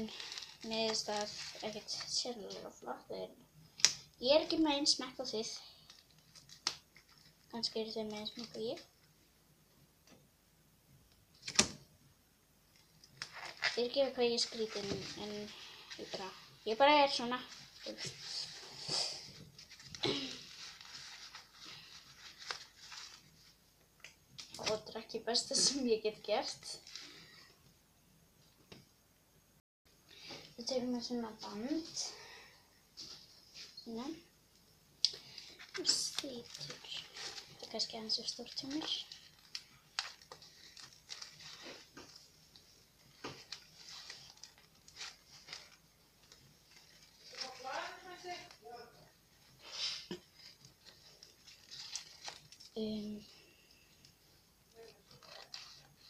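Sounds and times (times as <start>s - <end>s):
paper crinkling and rustling: 0.0s - 2.6s, 5.8s - 8.9s, 12.8s - 24.9s, 35.2s - 48.7s, 50.2s - 52.8s, 54.0s - 56.0s.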